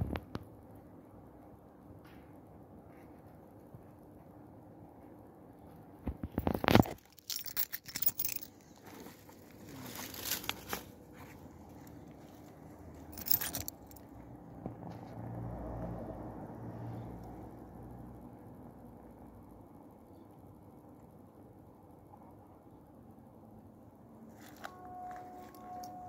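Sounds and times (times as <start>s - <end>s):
scraping and rustling: 6.1s - 14.0s.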